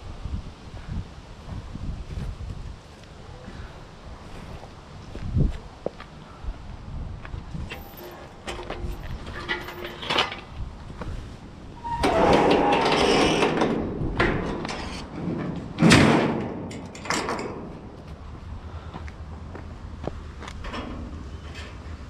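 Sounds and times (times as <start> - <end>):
scrap metal scraping on steel deck: 7.7 - 10.5, 11.8 - 16.6.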